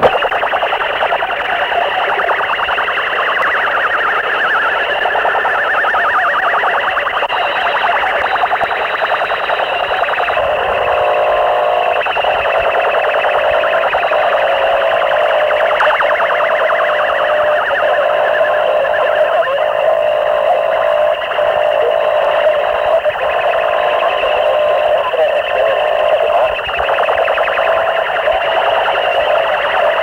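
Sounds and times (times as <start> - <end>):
distorted electronic noise: 0.0 - 30.0
steady droning tone: 17.0 - 30.0.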